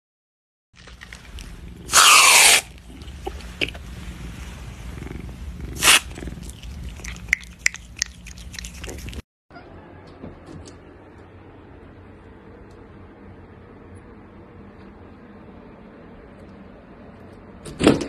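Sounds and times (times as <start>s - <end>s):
cat yowling: 1.8s - 2.8s.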